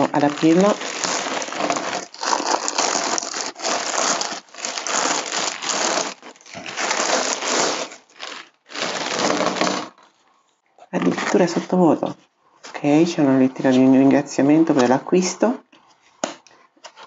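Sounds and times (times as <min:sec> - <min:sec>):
plastic bag tearing and crinkling: 0:00.0 - 0:10.1.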